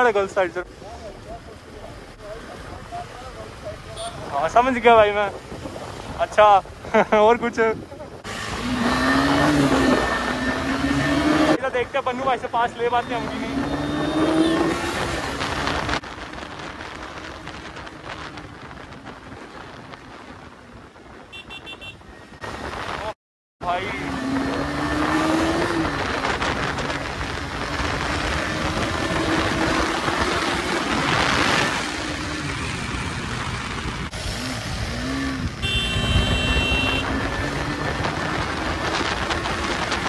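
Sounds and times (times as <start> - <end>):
wind noise: 4.0 - 11.6, 13.1 - 23.2, 24.1 - 40.0
motorcycle engine under throttle: 24.0 - 40.0.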